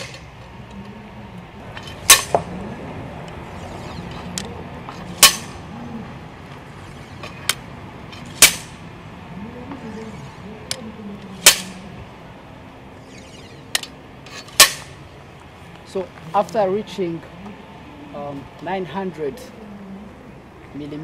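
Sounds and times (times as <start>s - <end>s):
steel hammer striking anvil: 2.1s - 2.4s.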